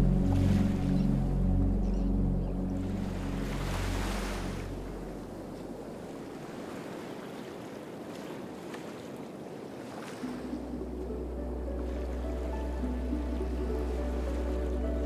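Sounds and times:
background music: 0:00.0 - 0:05.6, 0:10.2 - 0:15.0.

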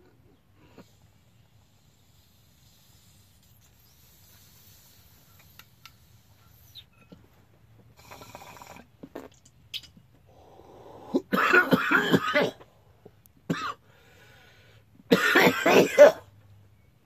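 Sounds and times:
draw through a bong: 0:00.6 - 0:07.2
man coughing: 0:11.2 - 0:12.6, 0:13.5 - 0:13.8, 0:15.1 - 0:16.3.

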